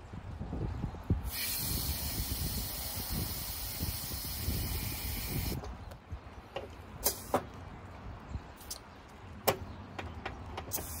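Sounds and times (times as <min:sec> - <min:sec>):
air chuck clicks and puffs: 0:01.3 - 0:05.7.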